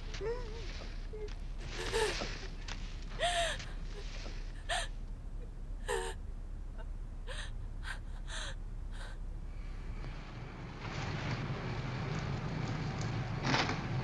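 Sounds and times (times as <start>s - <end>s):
woman sobbing: 0.0s - 9.2s
steady low hum: 0.0s - 14.0s.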